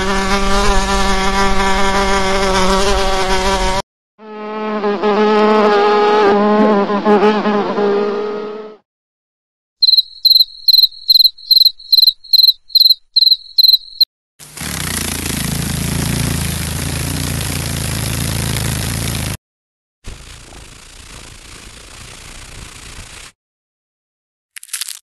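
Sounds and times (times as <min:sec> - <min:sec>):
cricket chirping: 0:09.8 - 0:14.0
dragonfly wings whirring: 0:09.8 - 0:19.4, 0:20.1 - 0:23.4.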